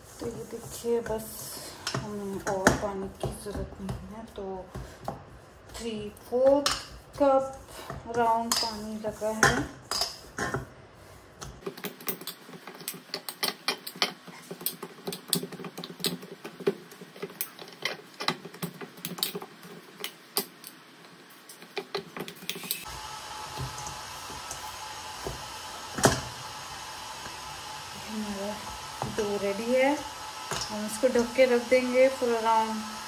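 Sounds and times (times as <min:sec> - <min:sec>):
dough slapping in steel bowl: 0:01.9 - 0:10.6.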